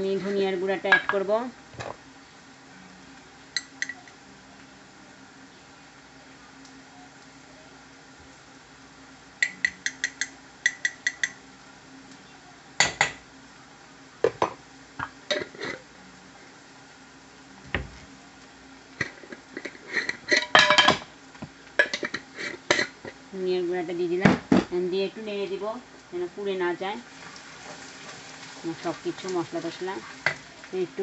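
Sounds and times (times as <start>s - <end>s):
metal spoon clinking on cookware: 9.4s - 11.4s.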